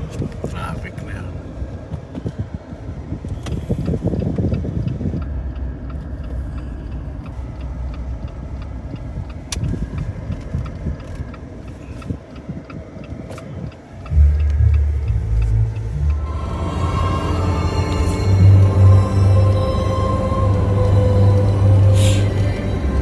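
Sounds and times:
car engine and road rumble: 0:00.0 - 0:23.0
faint regular ticking: 0:03.4 - 0:16.3
loud low music notes: 0:14.1 - 0:23.0.

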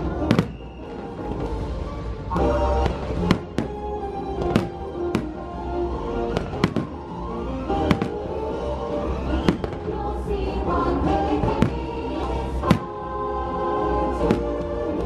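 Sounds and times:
soundtrack music: 0:00.0 - 0:15.0
fireworks bursting: 0:00.1 - 0:01.7, 0:02.4 - 0:05.4, 0:06.3 - 0:07.0, 0:07.7 - 0:08.4, 0:09.3 - 0:10.1, 0:14.2 - 0:14.8.

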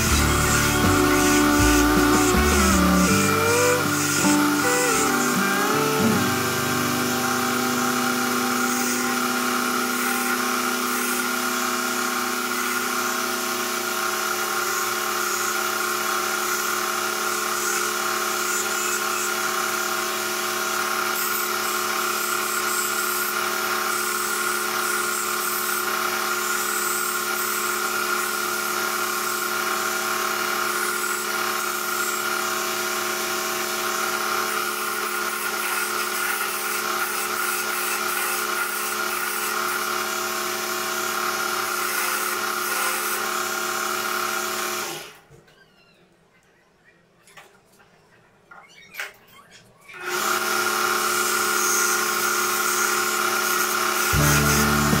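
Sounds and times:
lathe motor humming: 0:00.0 - 0:13.4, 0:53.8 - 0:55.0.

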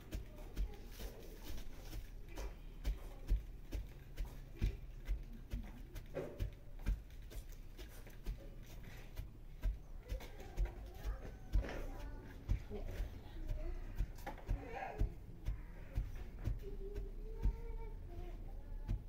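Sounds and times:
wooden pestle pounding in mortar: 0:00.0 - 0:19.0.

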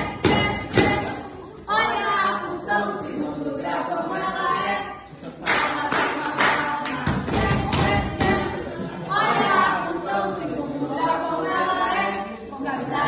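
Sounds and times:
hand claps keeping a beat: 0:00.0 - 0:01.1, 0:05.4 - 0:08.5.

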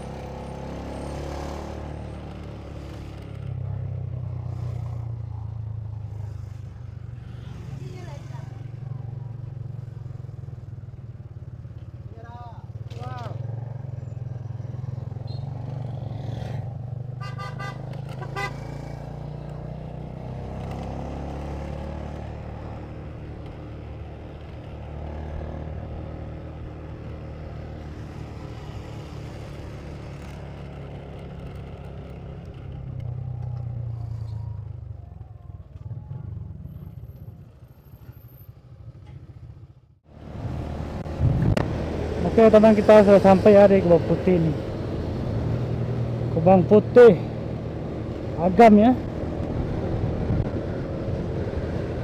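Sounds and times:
road and wind noise: 0:00.0 - 0:52.0
motorcycle engine running: 0:07.8 - 0:52.0
vehicle horn toots: 0:17.2 - 0:18.7.

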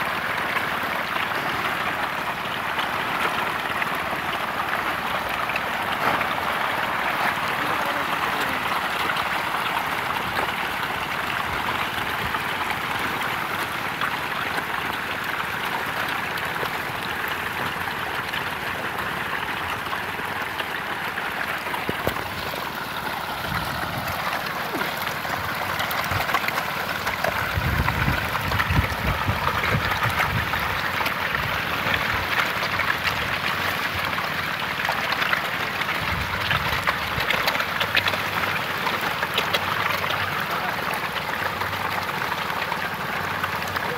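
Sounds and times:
fish splashing in water: 0:00.0 - 0:43.9.

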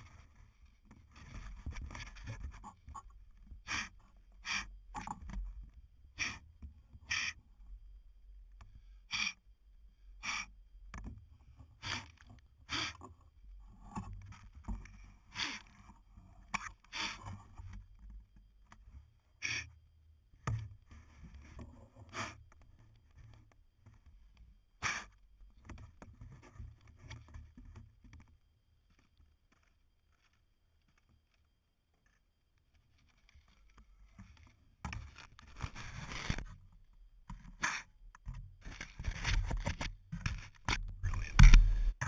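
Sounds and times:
rustle and knock of carried drone: 0:00.0 - 0:03.6, 0:10.8 - 0:19.2, 0:25.3 - 0:42.0.

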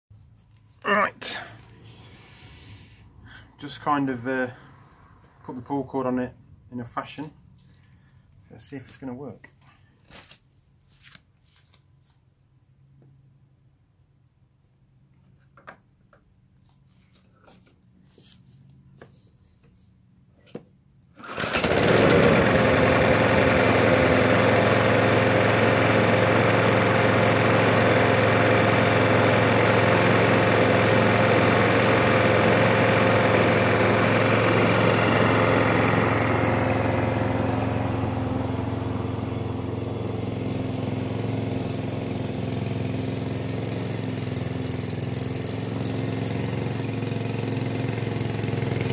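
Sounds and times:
lawnmower engine running: 0:21.2 - 0:48.9.

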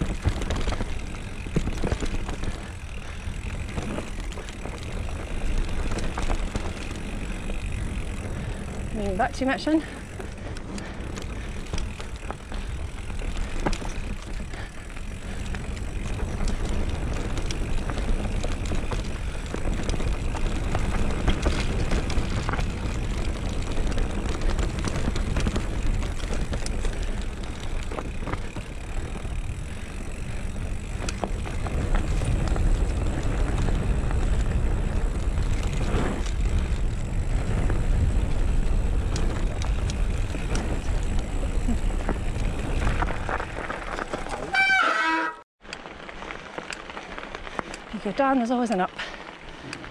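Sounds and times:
bike knocking and rattling: 0:00.0 - 0:49.9
bike tyres rumbling on dirt trail: 0:00.0 - 0:49.9.

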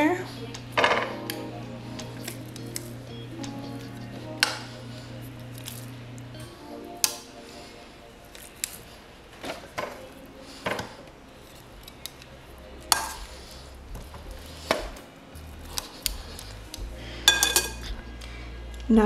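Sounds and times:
metal tongs clinking on glass dish: 0:17.3 - 0:17.9.

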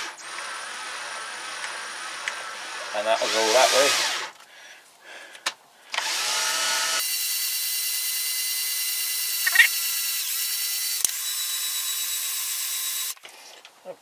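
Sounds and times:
electric drill whining: 0:00.0 - 0:04.4, 0:05.9 - 0:13.2
sharp click: 0:09.4 - 0:09.7.

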